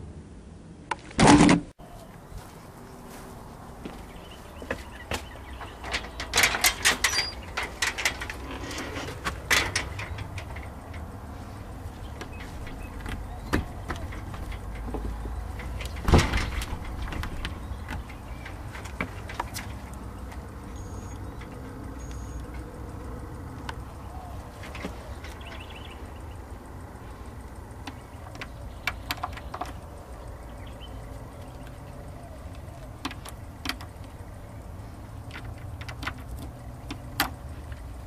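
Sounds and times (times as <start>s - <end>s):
clattering knocks and clicks: 4.7s - 23.9s, 31.3s - 38.0s
loud thud: 16.0s - 17.3s.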